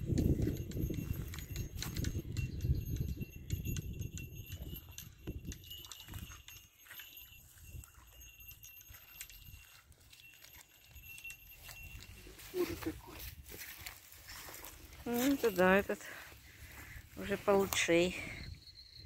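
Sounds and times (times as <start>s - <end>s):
wind buffeting microphone: 0.0s - 6.6s.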